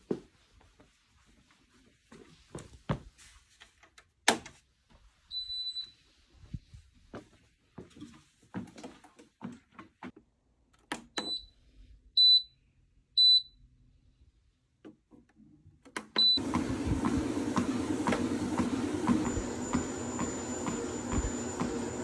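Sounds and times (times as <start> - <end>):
treadmill belt knocking: 16.2 - 22.0
treadmill belt motor humming: 16.2 - 22.0.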